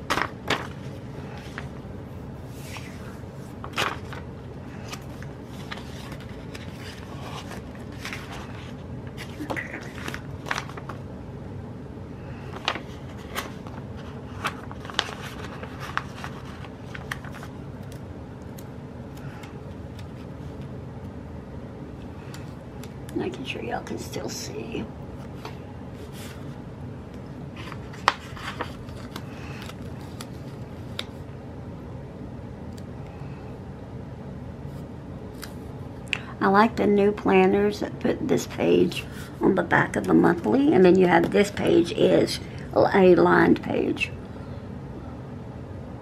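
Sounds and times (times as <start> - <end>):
paper sheets rustling and clicking: 0.0 - 1.8, 2.6 - 11.0, 12.5 - 18.0, 27.6 - 31.2
steady low hum: 0.0 - 46.0.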